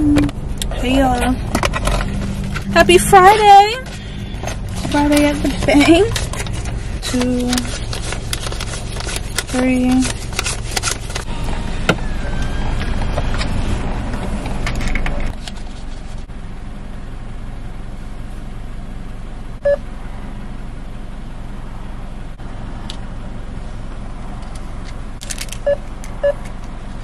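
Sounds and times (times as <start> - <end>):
car interior rumble: 0.0 - 27.0
short beep: 19.6 - 19.8.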